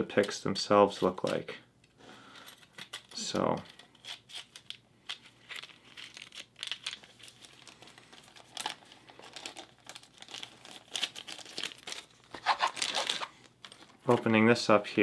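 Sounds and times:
plastic bag crinkling: 5.4s - 14.4s.

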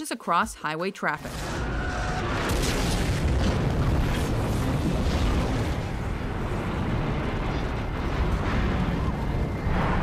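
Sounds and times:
deep rumble of fire and wreckage: 1.5s - 10.0s
debris crashing: 1.6s - 8.9s.

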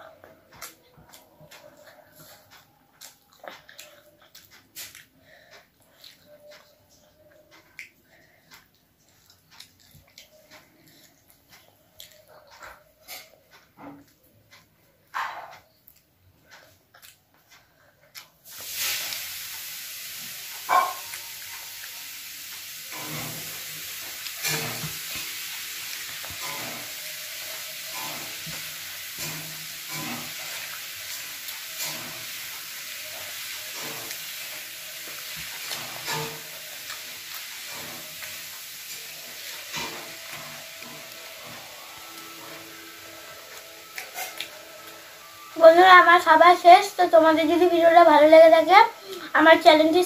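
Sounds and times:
chewing: 0.0s - 19.7s, 20.3s - 45.2s
steady hiss: 18.4s - 50.0s.

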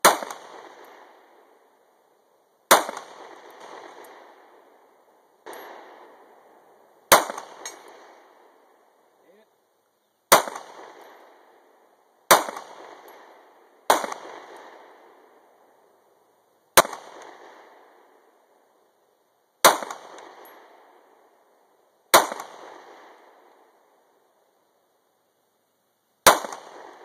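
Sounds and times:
pistol shots echoing: 0.0s - 1.6s, 2.7s - 9.0s, 10.3s - 11.7s, 12.3s - 15.6s, 16.8s - 18.3s, 19.6s - 21.1s, 22.1s - 23.8s, 26.2s - 27.0s.

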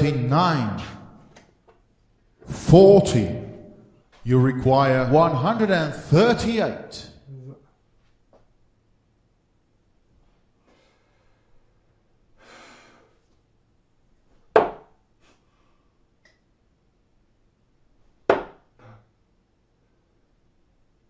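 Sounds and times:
darts thudding into dartboard: 14.6s - 14.9s, 18.3s - 18.6s.

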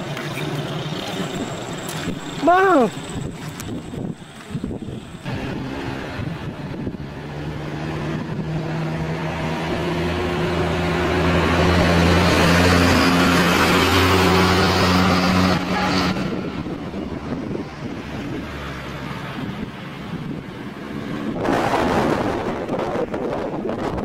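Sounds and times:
van passing by: 5.2s - 23.9s.

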